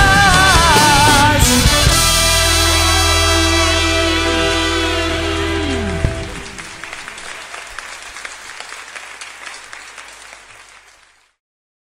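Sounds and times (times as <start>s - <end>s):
band playing final chord: 0.3s - 7.0s
audience applause: 3.8s - 11.4s.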